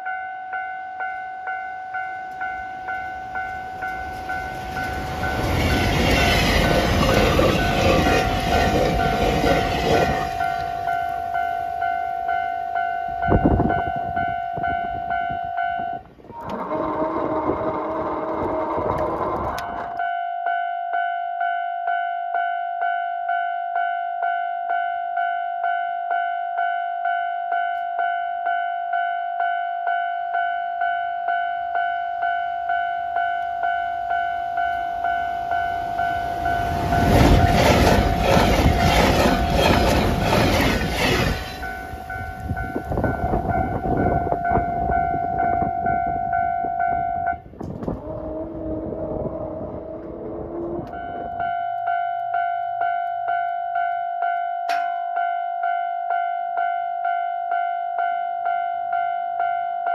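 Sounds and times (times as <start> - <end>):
level-crossing warning bell: 0.0 - 59.9
train wheels clattering over rails: 3.8 - 10.4, 36.6 - 42.0.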